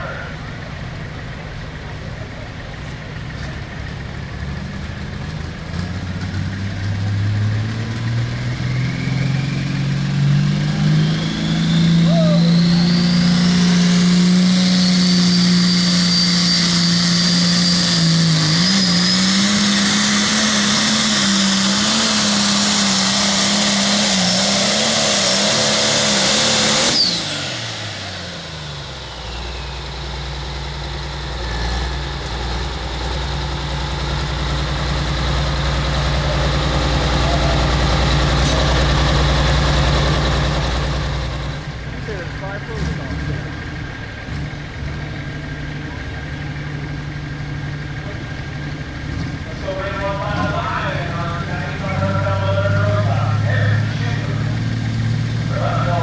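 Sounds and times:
diesel tractor engine under heavy load: 0.0 - 56.0
high turbo whine: 0.0 - 56.0.

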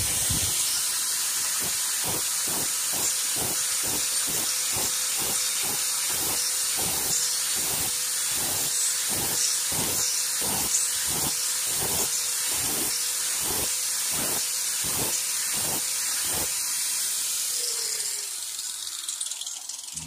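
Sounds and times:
grinder grinding steel: 0.0 - 20.0
grinder motor spinning down: 14.9 - 20.0.

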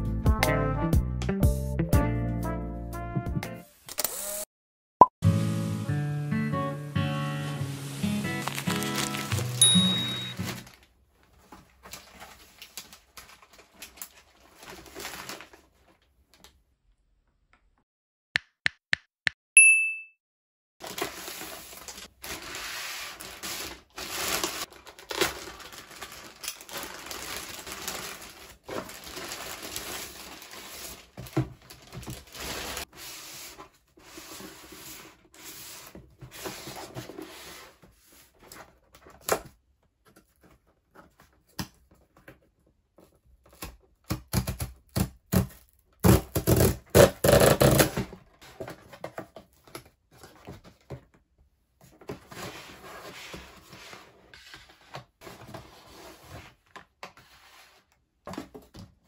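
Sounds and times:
cardboard flaps tearing open: 7.8 - 9.6, 43.5 - 48.2.

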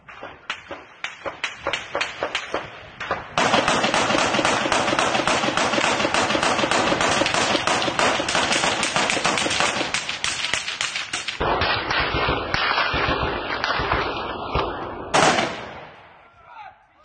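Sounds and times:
rapid gunfire: 0.0 - 15.9
gunshots: 0.0 - 16.2.

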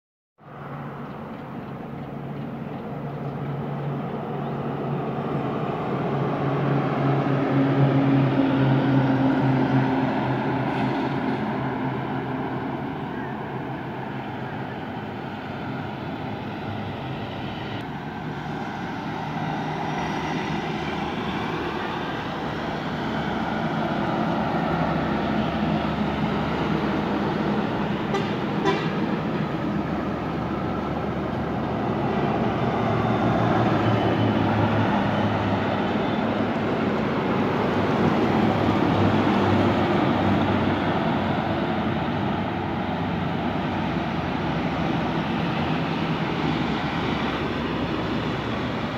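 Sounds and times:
trucks and buses passing: 0.4 - 48.9
vehicle horns: 28.0 - 29.2.

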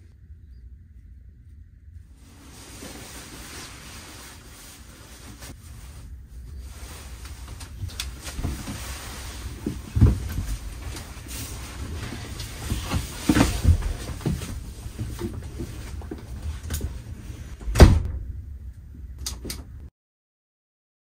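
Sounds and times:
steady low hiss: 0.0 - 19.9
knocks and thumps: 9.6 - 10.9.

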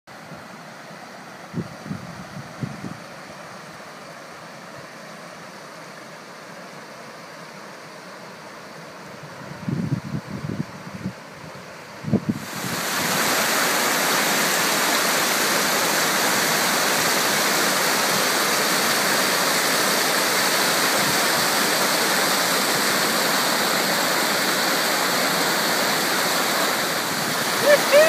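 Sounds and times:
river rapid rushing and splashing: 12.3 - 28.0.

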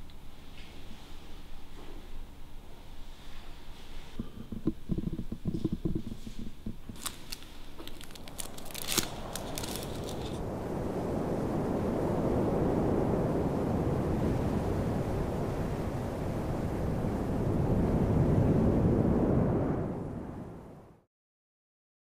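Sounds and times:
steady rushing rumble: 4.2 - 20.8.

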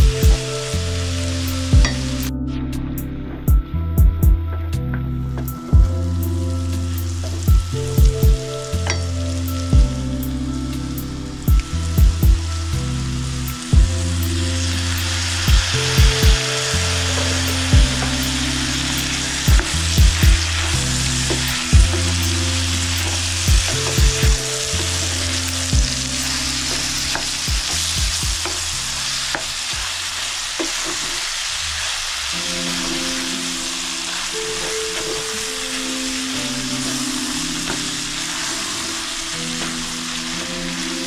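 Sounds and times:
background music with drums: 0.0 - 0.9, 1.5 - 12.6, 13.7 - 28.8
food sizzling in a frying pan: 0.0 - 2.3, 5.4 - 41.0.

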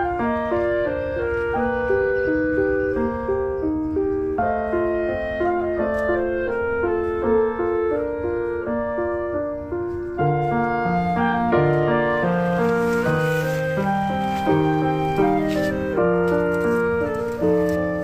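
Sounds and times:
slow keyboard-like music: 0.0 - 18.0.

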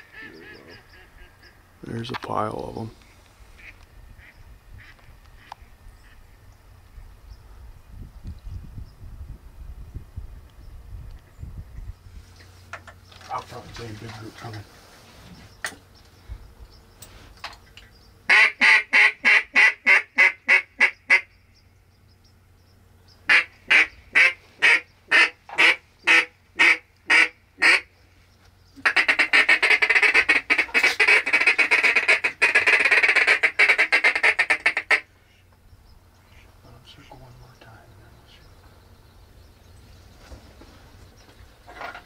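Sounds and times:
duck call quacking: 3.6 - 5.5, 18.3 - 21.3, 23.3 - 27.9, 28.8 - 35.1.

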